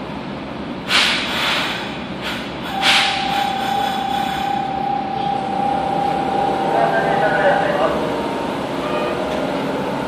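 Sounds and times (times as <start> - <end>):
pneumatic air hisses: 0.9 - 4.5
traction inverter whine: 2.7 - 10.0.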